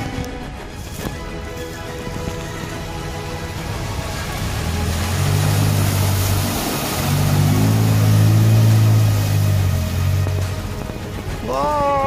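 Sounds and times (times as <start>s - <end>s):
wheels splashing through mud: 0.0s - 12.0s
suv engine revving hard: 3.6s - 10.9s.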